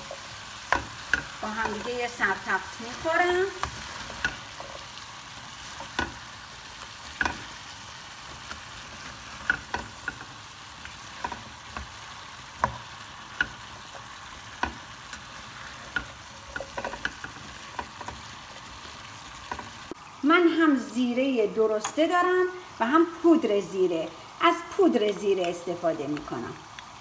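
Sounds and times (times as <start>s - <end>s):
spatula scraping and knocking pan: 0.0s - 20.0s
cabbage and meat sizzling in pan: 0.0s - 27.0s.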